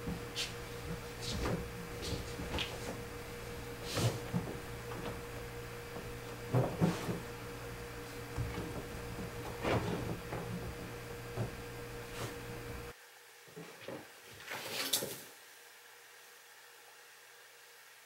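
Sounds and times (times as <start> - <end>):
soft knocks on sofa: 0.0 - 12.8
fabric rustling: 0.0 - 12.9
low steady hum: 0.0 - 13.0.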